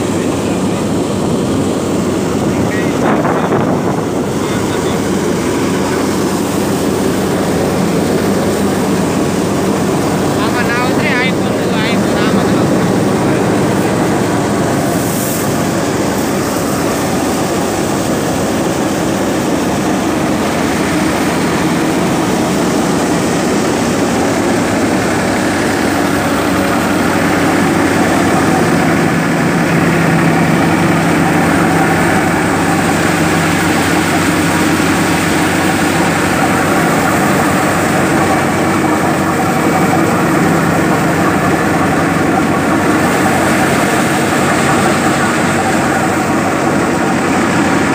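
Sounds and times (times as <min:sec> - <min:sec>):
diesel tractor engine: 0:00.0 - 0:47.9
thresher drum running: 0:00.0 - 0:47.9.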